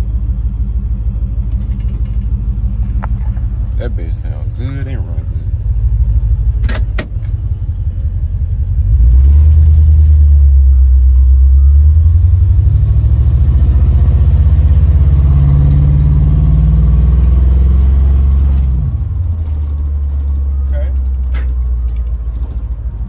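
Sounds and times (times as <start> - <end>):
car engine deep exhaust note: 0.0 - 23.0.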